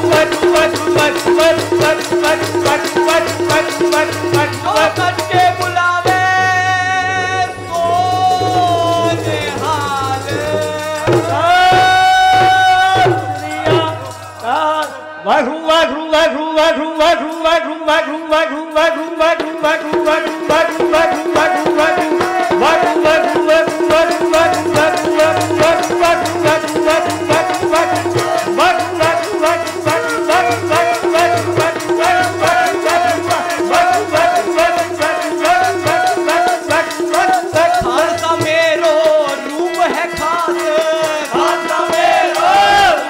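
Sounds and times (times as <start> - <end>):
tabla: 0.0 - 16.3, 18.7 - 43.0
hand clappers clacking: 20.1 - 43.0.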